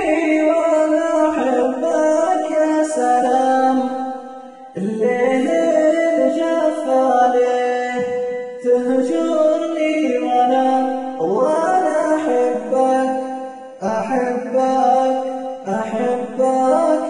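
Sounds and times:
auto-tuned singing voice with echo: 0.0s - 17.0s.

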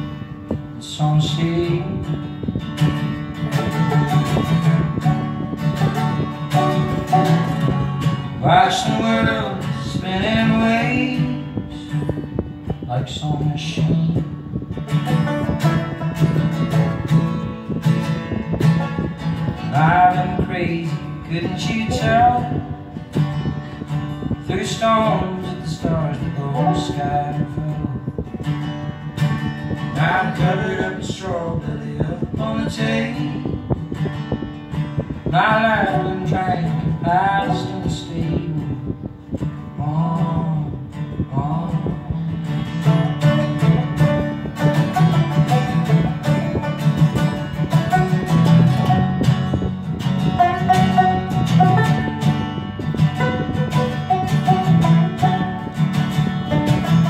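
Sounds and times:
plucked string instrument: 0.0s - 57.0s
steady low bed: 0.0s - 57.0s
strummed acoustic guitar: 0.0s - 57.0s
wavering melody line: 43.4s - 57.0s.

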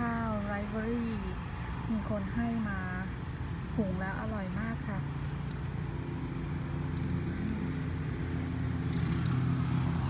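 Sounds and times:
motor engine droning: 5.5s - 10.0s.

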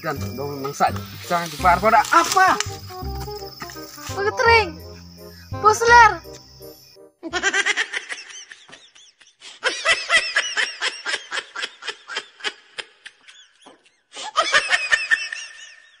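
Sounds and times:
woman giggling: 7.2s - 15.6s.

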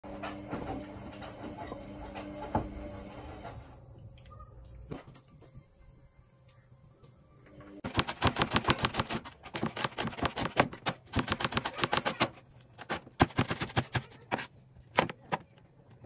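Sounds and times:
knife chopping on wooden board: 7.9s - 15.4s.

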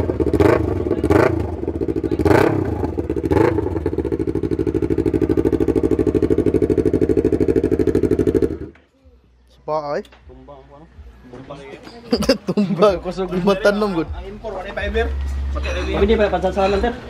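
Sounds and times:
motorcycle engine idling and revving: 0.0s - 8.8s.

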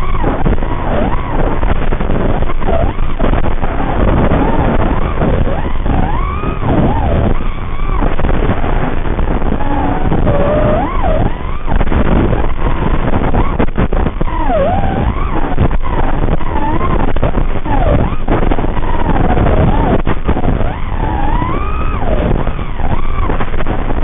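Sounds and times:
quadcopter motors whining: 0.0s - 23.5s.

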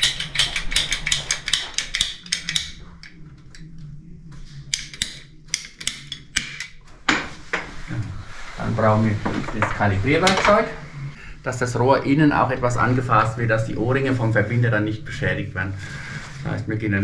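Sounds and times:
tools clicking and clacking: 0.0s - 3.7s, 4.7s - 6.8s
low steady hum: 0.0s - 17.0s.

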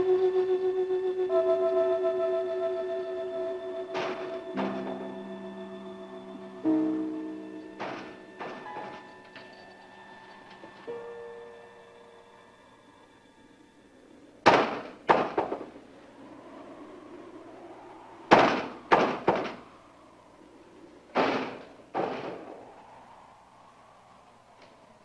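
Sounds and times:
loud sharp bangs: 14.4s - 15.7s, 18.3s - 19.6s, 21.1s - 22.7s.

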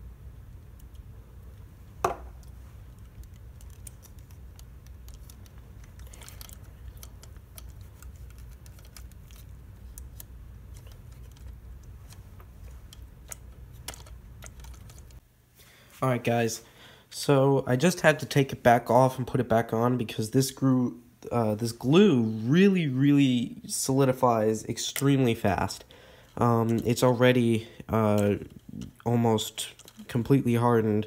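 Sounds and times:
steady low hum: 0.0s - 31.0s
plastic parts clicking: 2.3s - 15.2s, 28.0s - 30.2s.

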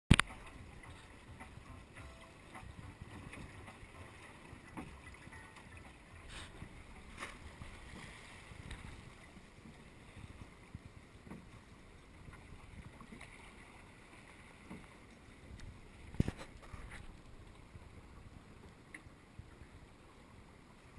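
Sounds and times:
knocks from boat: 0.1s - 11.7s
water rushing along boat hull: 0.1s - 20.9s.

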